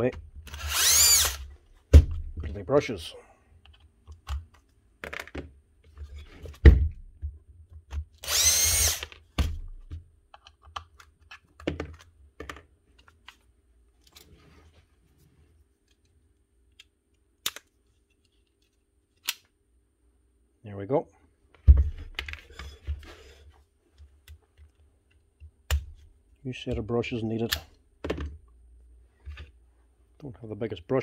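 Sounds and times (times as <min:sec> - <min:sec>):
screwdriver and plastic parts clicking: 0:03.6 - 0:05.4, 0:10.3 - 0:13.4, 0:16.7 - 0:19.5.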